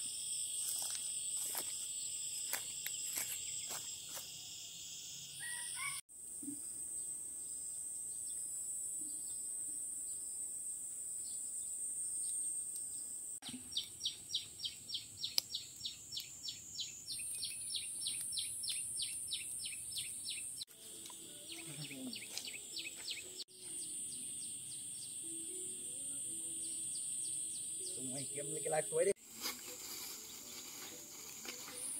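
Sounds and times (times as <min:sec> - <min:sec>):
high-pitched insect drone: 0:00.0 - 0:06.0, 0:20.7 - 0:31.9
rhythmic chirping call: 0:13.7 - 0:31.9.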